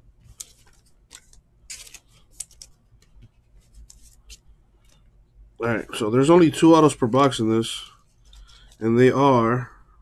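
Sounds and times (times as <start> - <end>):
cards and plastic clicking and rustling: 0.2 - 5.1, 8.2 - 9.2.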